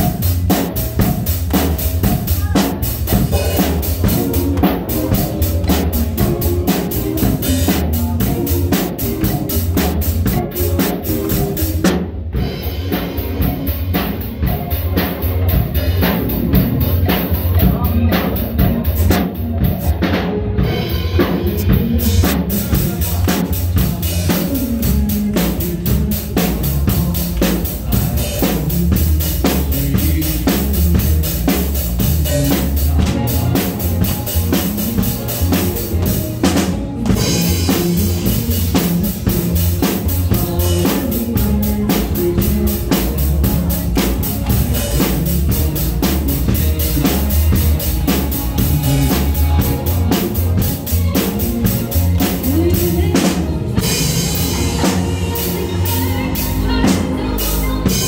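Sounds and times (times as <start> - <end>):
backing music: 0.0 - 58.0
drum kit rock beat: 0.0 - 58.0.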